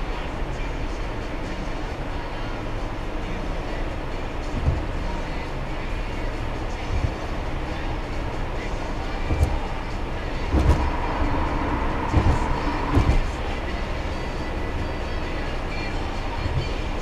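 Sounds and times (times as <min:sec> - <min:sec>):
tyre and road rumble: 0:00.0 - 0:17.0
short thumps: 0:04.5 - 0:05.0, 0:06.9 - 0:07.3, 0:09.2 - 0:09.7, 0:10.5 - 0:13.5, 0:16.4 - 0:16.8.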